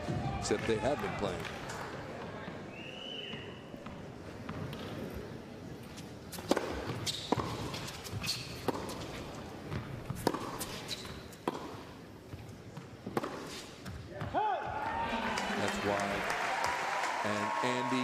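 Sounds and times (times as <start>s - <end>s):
tennis ball bouncing and struck: 6.3s - 14.0s.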